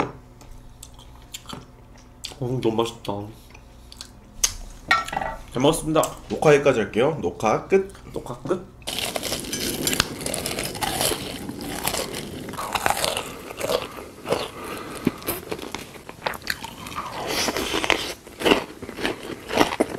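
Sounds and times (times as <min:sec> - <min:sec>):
crunching and chewing crisp food: 0:00.8 - 0:03.2, 0:08.8 - 0:19.9.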